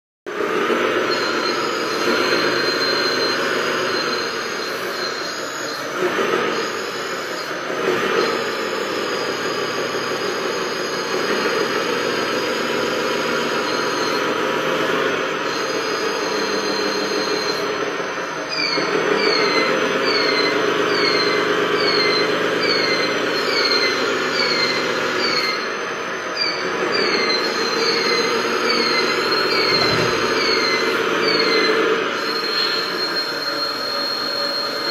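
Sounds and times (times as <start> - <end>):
toy vehicle motors whining: 0.3 - 34.9
short falling squeak: 18.4 - 25.7, 26.4 - 34.9.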